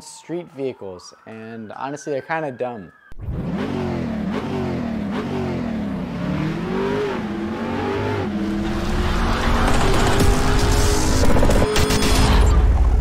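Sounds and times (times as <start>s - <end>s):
car engine revving: 3.2s - 12.6s.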